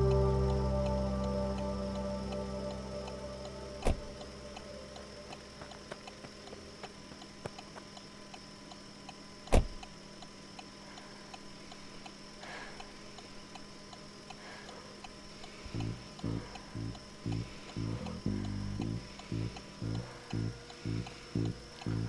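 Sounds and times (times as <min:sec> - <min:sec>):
faint hum: 0:00.0 - 0:22.0
indicator flasher ticking: 0:00.0 - 0:22.0
car door shutting: 0:03.8 - 0:04.0.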